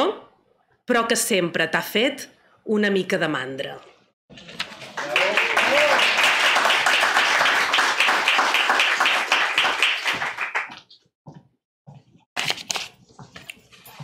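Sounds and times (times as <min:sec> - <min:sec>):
audience applauding: 0:04.6 - 0:10.8.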